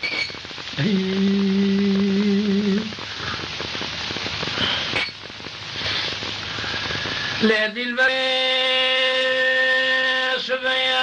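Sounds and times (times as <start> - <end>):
crackling hiss of old recording: 0.0 - 11.0
man singing long note: 0.8 - 3.0, 7.4 - 11.0.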